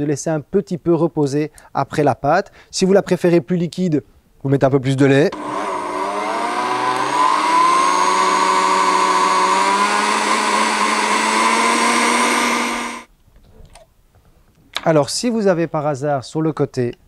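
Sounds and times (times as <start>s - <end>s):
blender motor whining: 5.3s - 13.1s.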